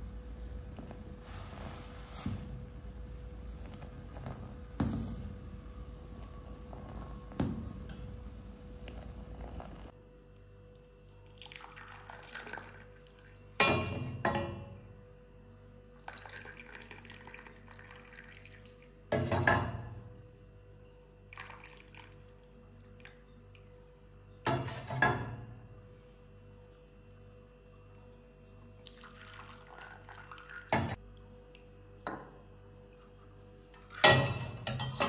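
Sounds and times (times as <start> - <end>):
tea pouring and splashing: 0.7 - 9.9, 10.8 - 13.4, 16.0 - 19.1, 21.3 - 23.8, 28.7 - 31.0.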